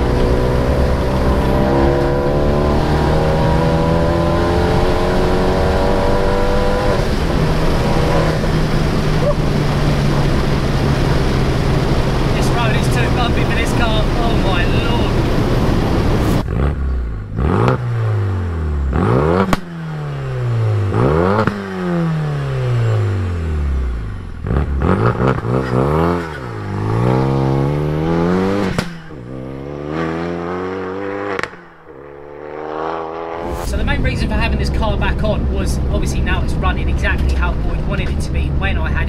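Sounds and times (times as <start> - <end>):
car engine revving: 0.0 - 39.0
sharp exhaust cracks: 24.3 - 29.7.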